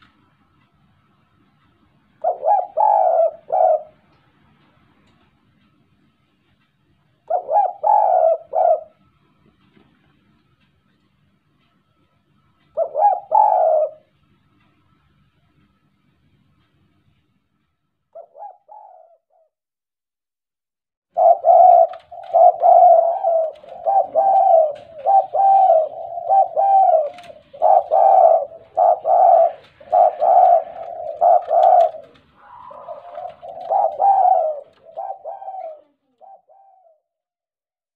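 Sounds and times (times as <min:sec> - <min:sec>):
dove cooing: 0:02.2 - 0:04.2, 0:07.2 - 0:09.4, 0:12.6 - 0:14.2, 0:18.1 - 0:19.5, 0:21.2 - 0:37.1.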